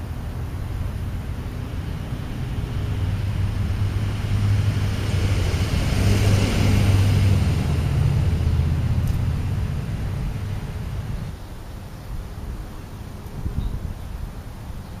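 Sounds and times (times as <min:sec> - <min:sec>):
motor vehicle passing: 0:00.0 - 0:11.8.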